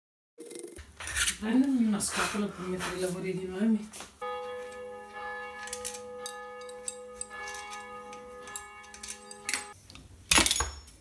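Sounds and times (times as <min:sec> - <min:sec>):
held chord of steady tones: 0:04.2 - 0:09.8.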